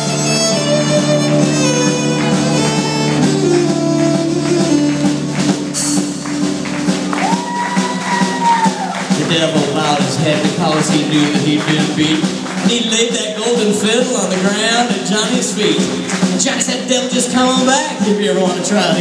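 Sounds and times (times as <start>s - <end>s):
fiddle: 0.0s - 8.0s
electric guitars: 0.0s - 9.2s
drums: 0.0s - 19.0s.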